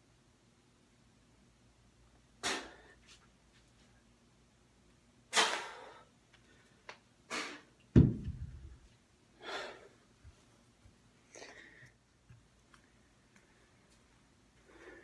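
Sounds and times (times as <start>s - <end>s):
kettlebell thud on floor: 8.0s - 8.7s.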